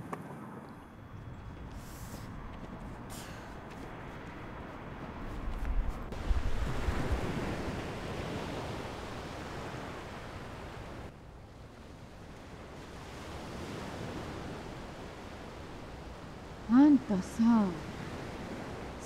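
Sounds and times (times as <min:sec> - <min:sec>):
wind buffeting microphone: 0:00.6 - 0:11.1
sea waves breaking on beach: 0:06.1 - 0:19.0.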